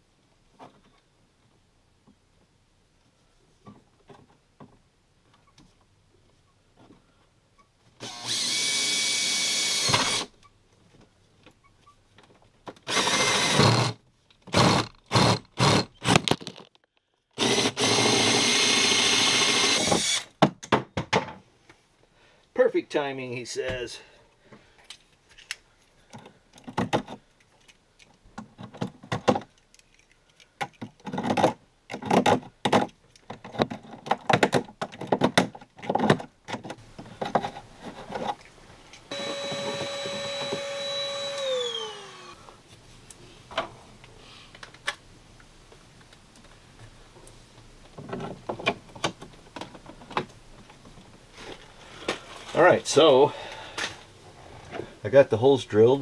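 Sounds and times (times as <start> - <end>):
drill motor whining: 8.0 - 10.3, 12.9 - 14.0, 17.4 - 20.3, 39.1 - 42.4.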